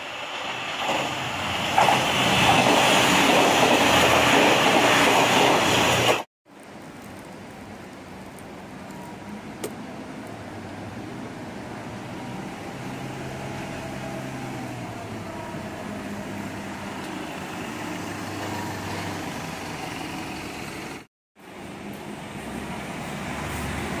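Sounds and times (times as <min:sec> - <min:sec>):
bus engine driving past: 0:10.5 - 0:24.0.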